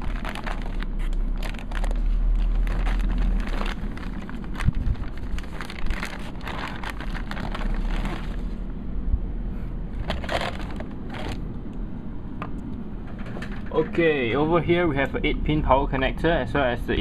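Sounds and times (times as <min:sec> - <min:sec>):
plastic bag crinkling: 0:00.0 - 0:08.6, 0:10.0 - 0:11.4.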